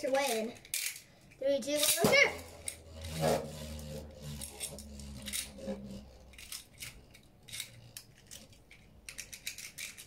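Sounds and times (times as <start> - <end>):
spinning tops clicking and scraping: 0.0 - 10.0
low whir of spinning tops: 1.8 - 8.7.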